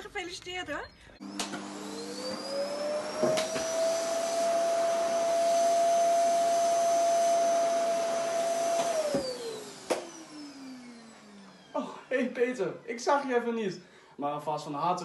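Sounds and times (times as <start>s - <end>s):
electric motor whine: 1.2s - 11.8s.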